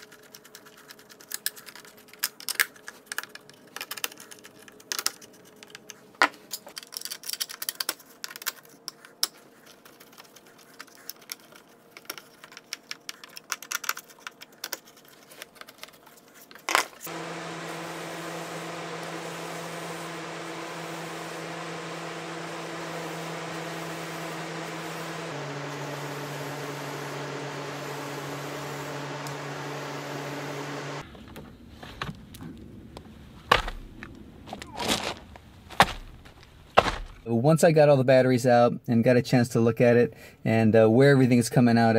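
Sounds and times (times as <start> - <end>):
fan humming: 17.0 - 31.4.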